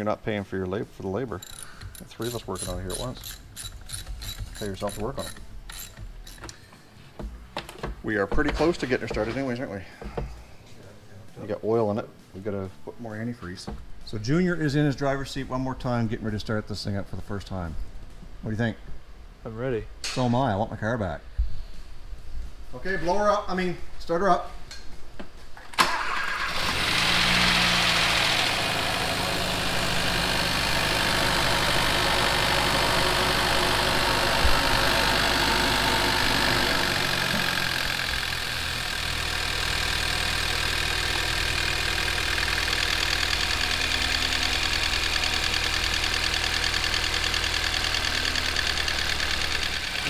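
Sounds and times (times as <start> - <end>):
car engine idling: 26.9 - 50.0.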